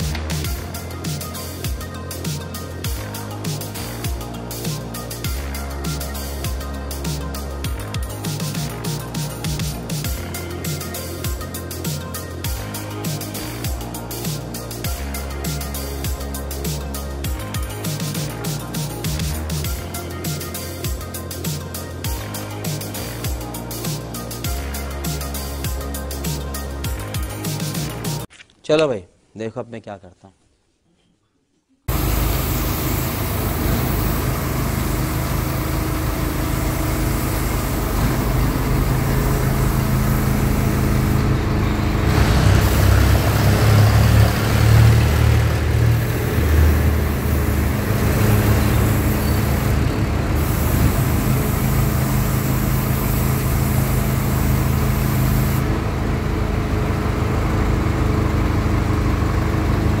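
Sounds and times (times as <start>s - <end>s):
heavy vehicle engine humming: 31.9s - 60.0s
road traffic noise: 31.9s - 60.0s.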